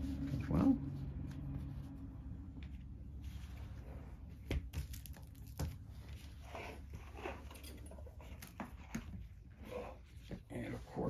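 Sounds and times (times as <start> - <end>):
cardboard rustling and scraping: 2.7 - 11.0.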